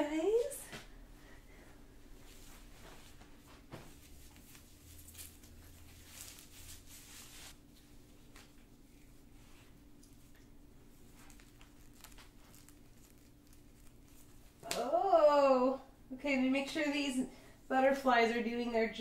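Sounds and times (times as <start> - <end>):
low steady hum: 0.0 - 19.0
clothing rustling: 0.2 - 14.8
fabric swishing: 2.1 - 7.7.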